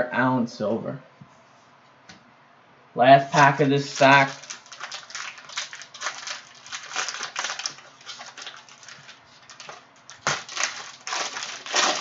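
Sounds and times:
plastic wrapper crinkling: 0:03.3 - 0:12.0.

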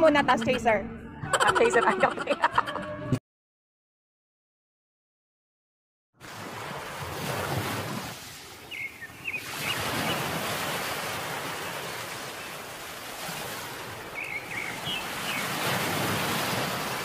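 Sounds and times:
surf washing ashore: 0:06.2 - 0:17.0.

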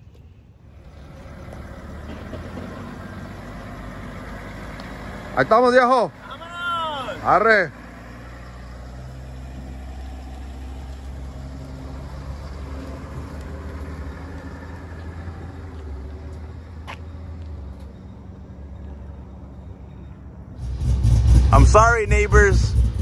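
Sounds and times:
vehicle engine humming: 0:00.0 - 0:23.0.

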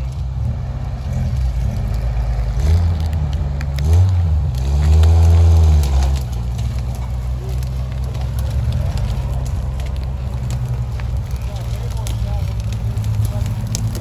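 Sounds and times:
off-road vehicle engine revving: 0:00.0 - 0:14.0.

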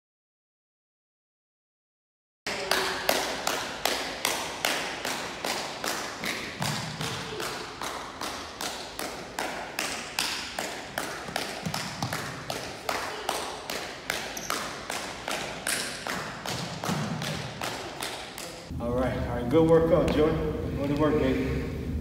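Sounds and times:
thuds on hardwood gym floor: 0:06.6 - 0:07.4, 0:11.2 - 0:12.6, 0:15.3 - 0:17.7.

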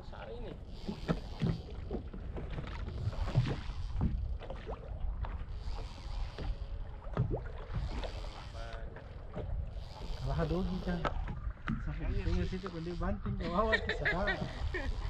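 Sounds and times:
water slapping boat hull: 0:00.0 - 0:15.0
wind buffeting microphone: 0:00.0 - 0:15.0.

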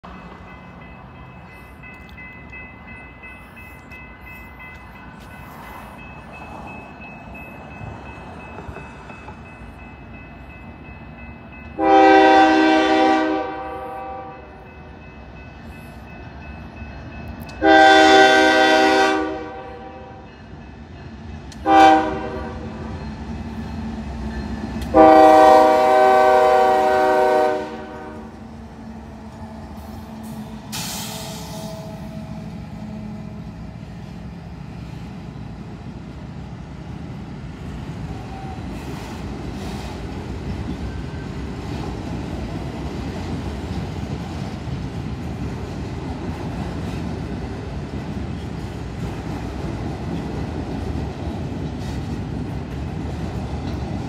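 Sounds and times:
low rumble of train: 0:00.0 - 0:54.0
locomotive air horn blasts: 0:11.8 - 0:14.6, 0:17.6 - 0:20.3, 0:21.6 - 0:22.8, 0:24.9 - 0:28.4.

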